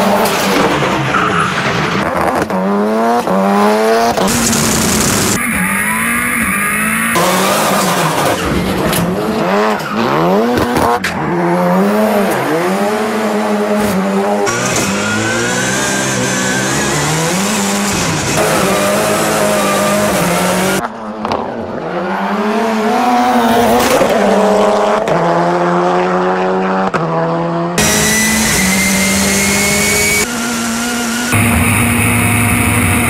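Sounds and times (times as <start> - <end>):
race car engine revving: 0.0 - 33.0
high whine: 31.3 - 33.0.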